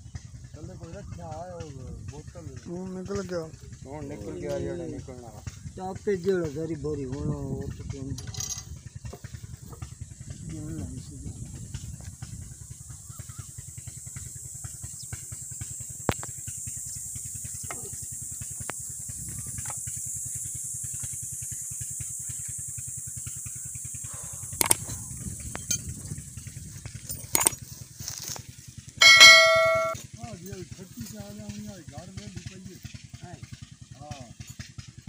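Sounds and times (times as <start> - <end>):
constant high hiss: 0.0 - 34.6
metal tools clinking: 8.2 - 8.7, 27.0 - 28.4, 29.0 - 30.0
loud ringing metallic clang: 29.0 - 30.0.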